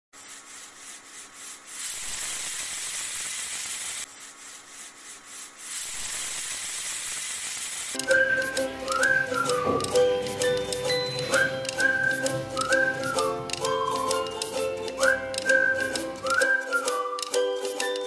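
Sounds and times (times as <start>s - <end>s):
hiss with faint crackles: 0.2s - 8.0s.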